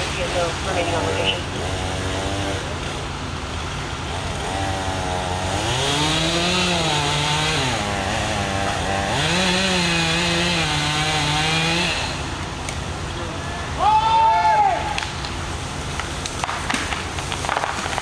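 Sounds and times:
chainsaw cutting wood: 0.9 - 12.8, 16.2 - 18.0.

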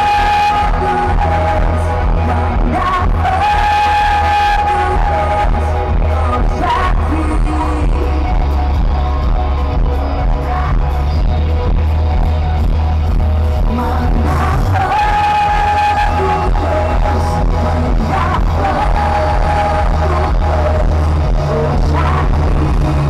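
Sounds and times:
crowd singing along: 0.0 - 23.0
gospel worship music: 0.0 - 23.0.

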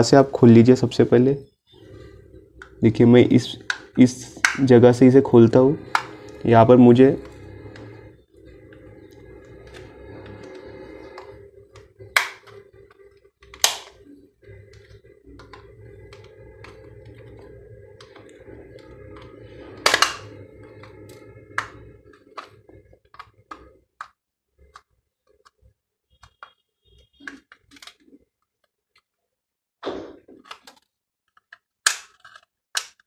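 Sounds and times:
plastic clips snapping loose: 13.5 - 14.0, 31.4 - 33.0.

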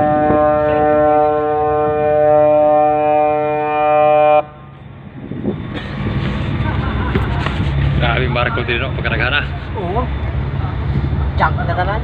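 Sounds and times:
ship's horn blast: 0.0 - 4.7.

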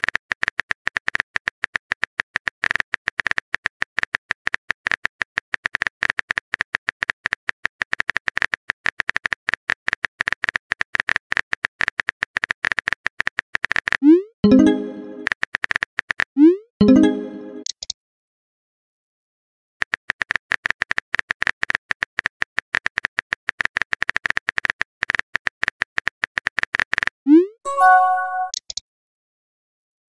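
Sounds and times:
keyboard typing clicks: 27.7 - 28.8.

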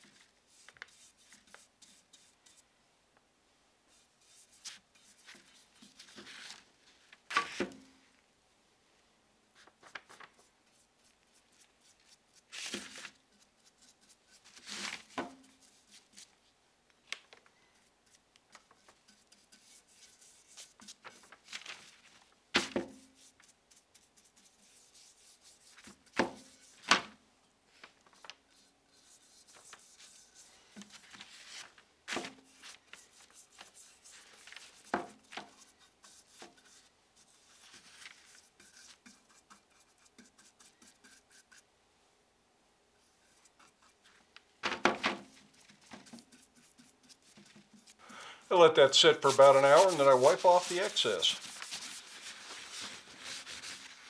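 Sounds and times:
brush rubbing on wood: 0.1 - 2.6, 3.9 - 6.2, 18.0 - 21.3, 23.0 - 26.9, 28.5 - 31.7, 32.5 - 41.6, 43.0 - 44.3, 45.3 - 54.0.

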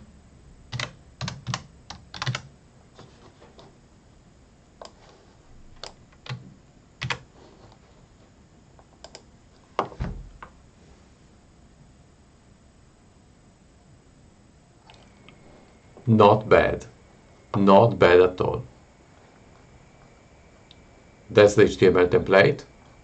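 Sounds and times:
typing on keyboard: 0.7 - 2.5, 5.8 - 6.4, 7.0 - 7.2
low thump: 9.8 - 10.5.

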